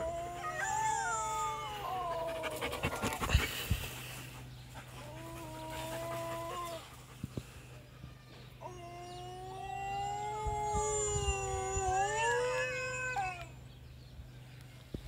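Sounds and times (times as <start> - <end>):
dog howling: 0.0 - 3.1, 8.6 - 13.5.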